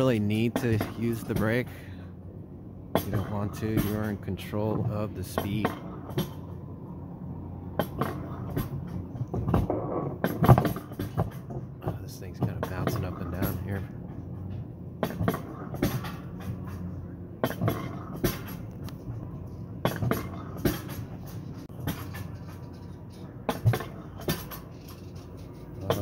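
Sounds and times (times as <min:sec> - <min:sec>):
sled rumbling on metal rails: 0:00.0 - 0:26.0
sled clicking and knocking: 0:07.8 - 0:26.0.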